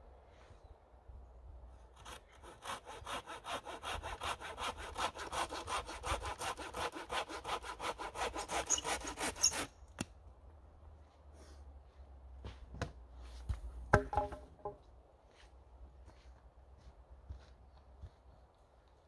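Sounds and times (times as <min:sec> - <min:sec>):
hand saw cutting wood: 0:01.9 - 0:09.7.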